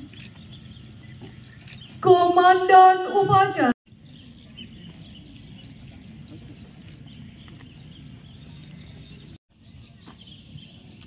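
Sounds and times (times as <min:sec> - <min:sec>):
faint bird chirps: 0:00.0 - 0:02.0.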